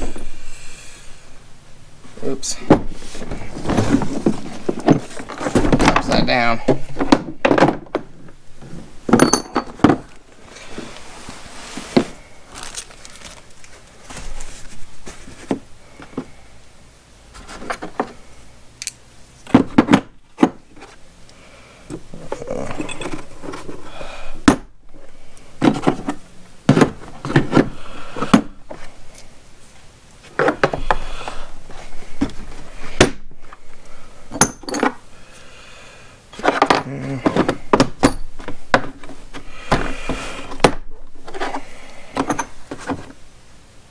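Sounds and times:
metal tools clattering in plastic case: 9.1s - 10.0s.

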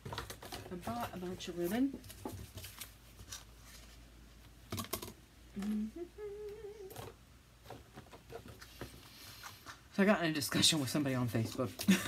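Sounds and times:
woman humming: 5.5s - 7.1s.

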